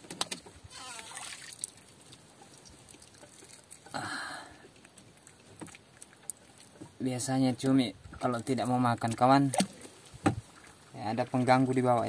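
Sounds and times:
fishing line clicks and patter: 0.0s - 4.0s.

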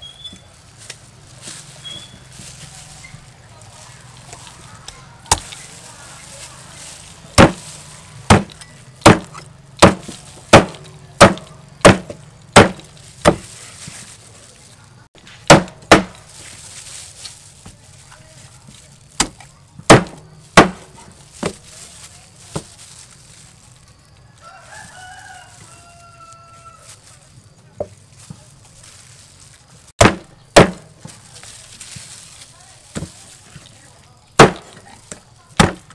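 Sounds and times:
cleaver chopping on wooden board: 7.4s - 13.5s, 15.5s - 16.2s, 19.2s - 21.6s, 30.0s - 31.0s, 34.4s - 34.8s, 35.6s - 35.9s
rooster crowing: 24.3s - 27.1s.

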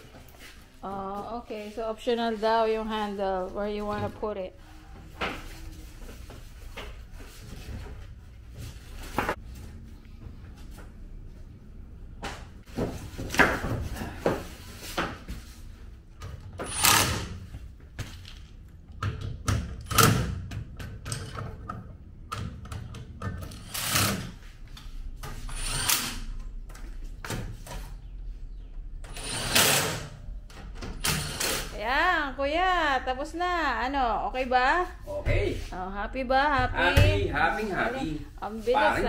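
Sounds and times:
cordless drill driving screws: 25.5s - 26.2s, 29.2s - 30.0s, 31.0s - 31.7s.

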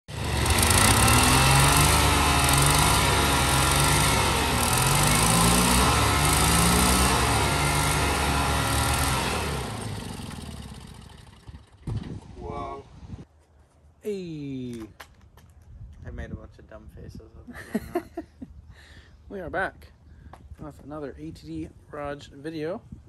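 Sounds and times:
engine revving: 0.1s - 12.0s.

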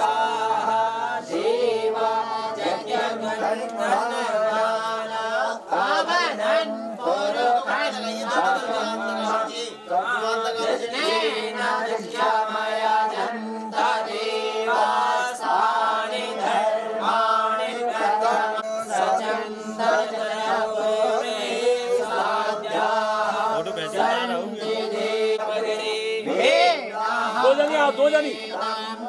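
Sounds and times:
group of voices chanting: 0.0s - 29.0s.

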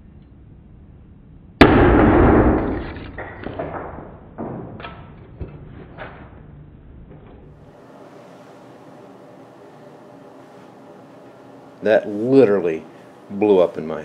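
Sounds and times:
capacitor bursting with sharp pop: 1.6s - 4.5s.

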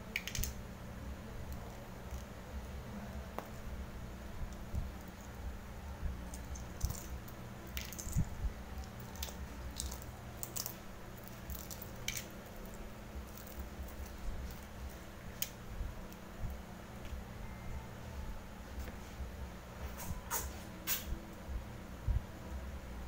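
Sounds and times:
egg shell crackling: 0.0s - 0.6s, 6.1s - 16.2s
low steady hum: 0.0s - 23.0s.

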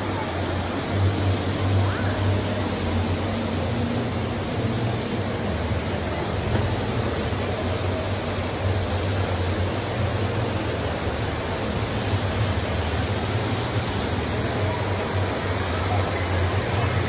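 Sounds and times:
steady rushing noise: 0.0s - 17.0s.

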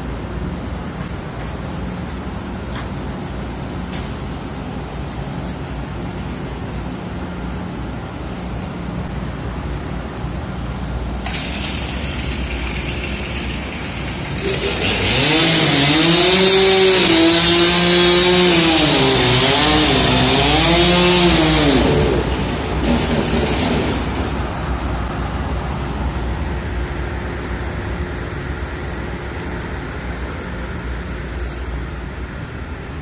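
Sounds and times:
circular saws running: 11.0s - 25.1s
saw whining through log: 11.3s - 24.4s.

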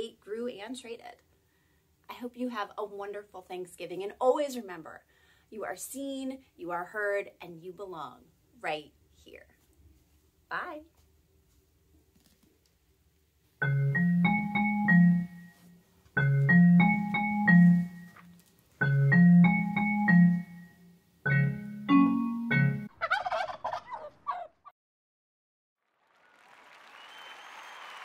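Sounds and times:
turkey gobble sound effect: 22.9s - 24.7s.

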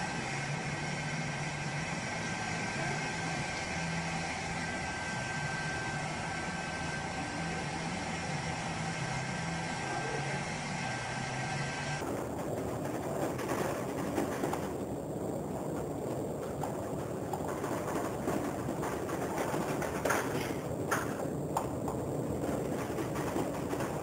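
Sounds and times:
mechanical drone: 0.0s - 24.0s
wind and sea rushing: 12.0s - 24.0s.

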